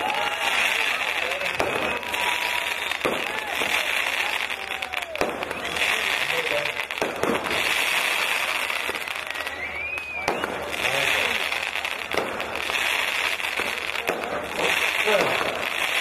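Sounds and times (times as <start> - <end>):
firecrackers crackling: 0.0 - 16.0
whistle gliding up and down: 8.5 - 11.4.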